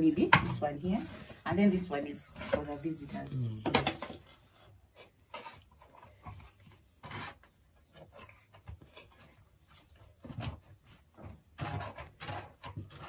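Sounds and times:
plastic scoop scraping metal pot: 0.4 - 3.2, 4.9 - 9.3, 10.3 - 13.0.

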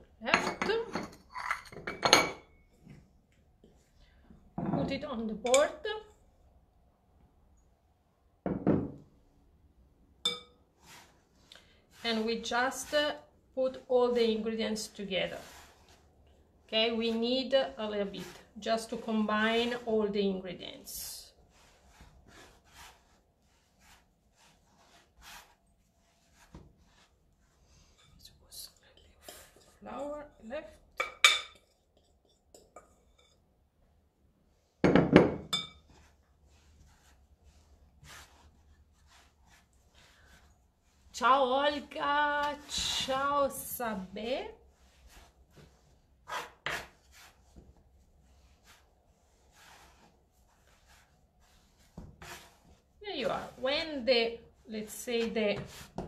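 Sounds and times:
hands kneading dough on board: 10.7 - 28.0, 34.5 - 56.0.

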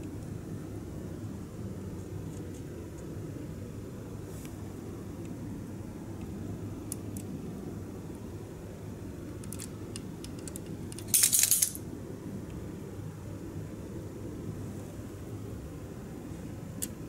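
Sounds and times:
steady low hum: 0.0 - 17.0
rapid metallic clinking: 11.1 - 11.8.

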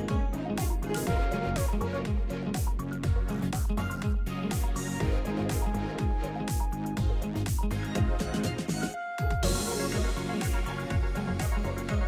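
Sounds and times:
electronic beat music: 0.0 - 12.0
deep bass thumps: 0.1 - 8.3.

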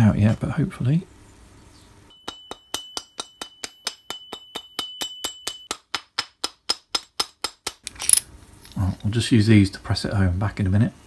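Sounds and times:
mallet tapping on steel shaft: 2.2 - 7.8.

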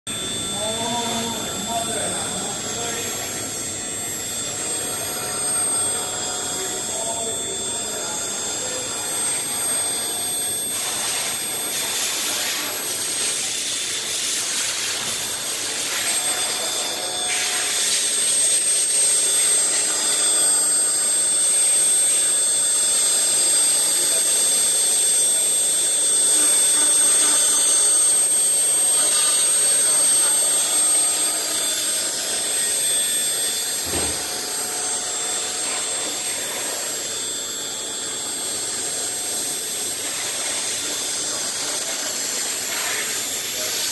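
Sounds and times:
high-pitched spindle whine: 0.1 - 43.9.

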